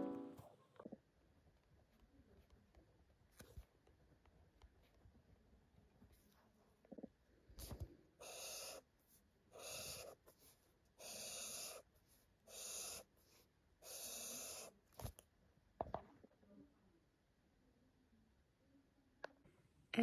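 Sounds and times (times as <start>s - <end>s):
highlighter strokes on paper: 7.6s - 14.8s.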